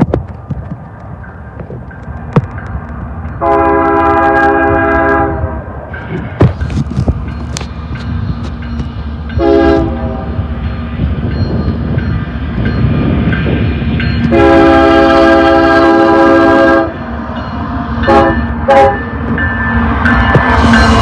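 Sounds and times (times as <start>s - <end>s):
diesel locomotive engines rumbling: 0.0s - 21.0s
locomotive air horn blasts: 3.4s - 5.6s, 9.4s - 10.4s, 14.2s - 17.0s, 18.0s - 19.2s.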